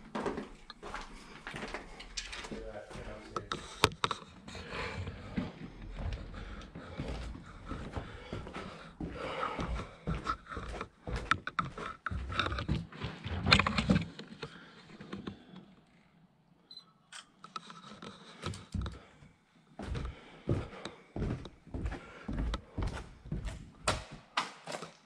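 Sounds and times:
footsteps: 0:00.0 - 0:14.1, 0:19.8 - 0:24.2
knocks and scrapes: 0:10.1 - 0:15.5.

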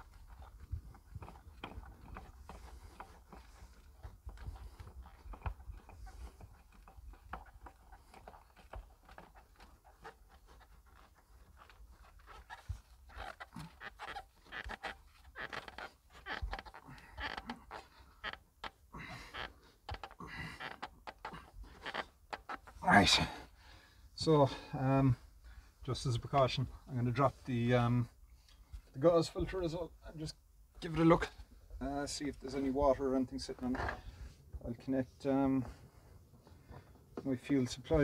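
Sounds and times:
heavy breathing: 0:18.9 - 0:21.9, 0:23.0 - 0:25.8.

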